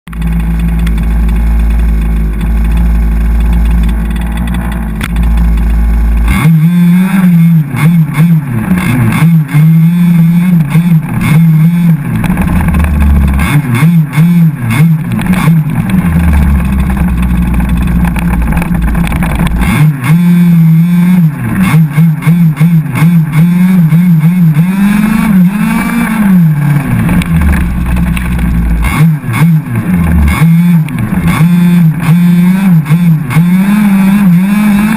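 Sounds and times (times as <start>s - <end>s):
chassis rattling and knocking: 0.1s - 6.3s, 12.0s - 13.8s, 15.0s - 19.8s, 26.7s - 30.3s
small two-stroke engine revving: 0.1s - 34.9s.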